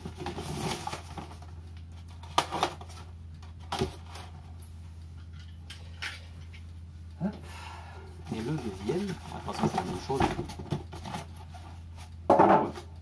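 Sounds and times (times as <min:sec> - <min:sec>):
cardboard packaging handled: 0:00.0 - 0:03.0
steady low hum: 0:00.0 - 0:13.0.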